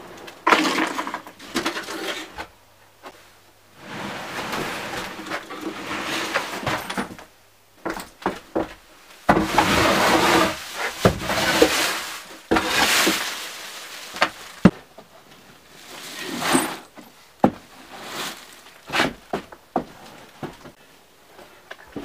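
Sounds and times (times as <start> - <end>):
sack and rags rustling and scraping: 9.2 - 14.7, 15.5 - 17.0, 17.6 - 19.2.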